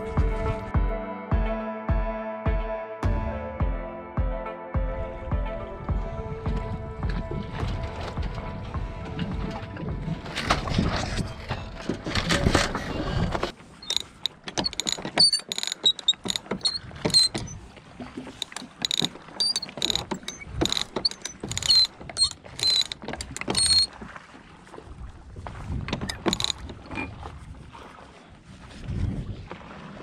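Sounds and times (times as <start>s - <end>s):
high metallic squeaks: 13.8s - 17.6s, 18.3s - 23.9s, 26.1s - 27.1s
winch ratcheting clicks: 13.8s - 17.6s, 18.2s - 23.9s, 25.9s - 27.1s.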